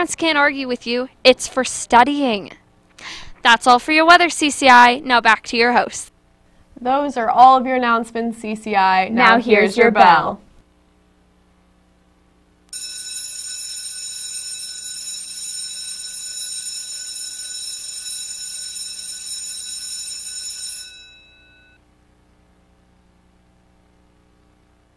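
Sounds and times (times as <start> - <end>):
school bell ringing: 12.8 - 21.8.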